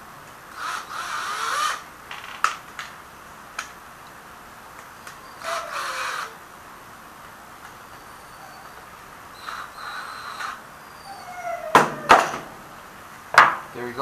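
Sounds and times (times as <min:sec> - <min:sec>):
cordless drill motor: 0:00.5 - 0:01.9, 0:05.0 - 0:06.4, 0:09.4 - 0:10.6.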